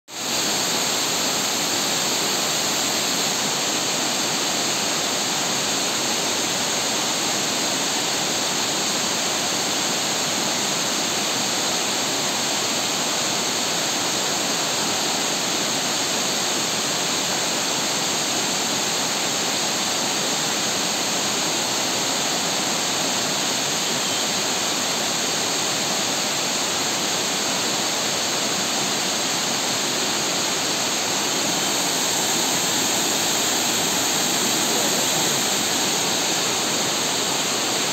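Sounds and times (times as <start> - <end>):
waterfall rushing: 0.2 - 37.9.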